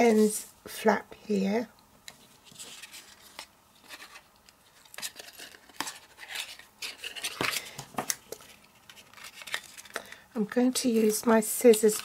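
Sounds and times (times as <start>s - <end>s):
paper rustling: 2.2s - 10.1s.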